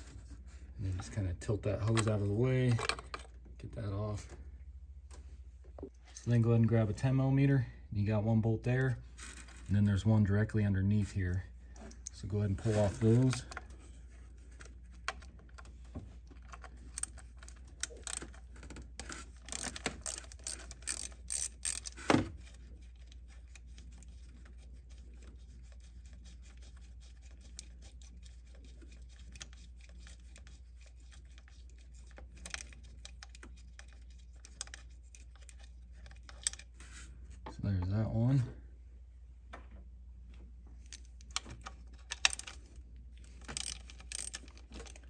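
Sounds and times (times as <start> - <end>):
ratchet clicking: 19.5 - 22.0, 43.5 - 45.0.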